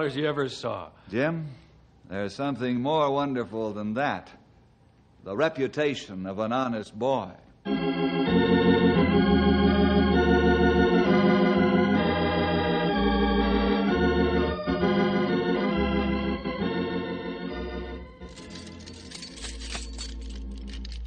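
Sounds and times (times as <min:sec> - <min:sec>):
organ music: 0:07.6 - 0:21.0.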